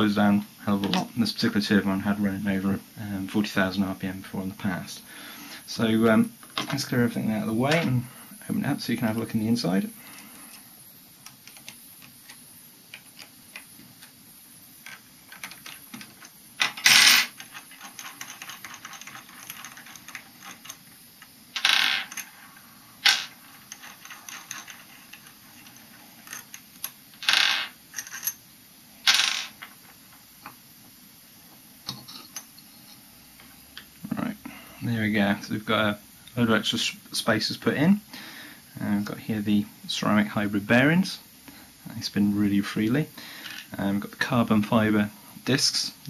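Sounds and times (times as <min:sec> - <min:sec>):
hex key ticking and scraping: 0:14.8 - 0:21.4
metal parts clinking on stone: 0:14.8 - 0:22.4, 0:23.0 - 0:28.4.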